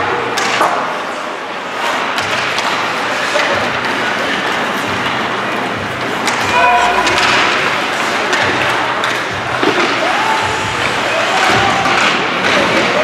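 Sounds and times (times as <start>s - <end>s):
din of people in a hall: 0.0s - 13.0s
sharp knocks: 6.3s - 8.5s.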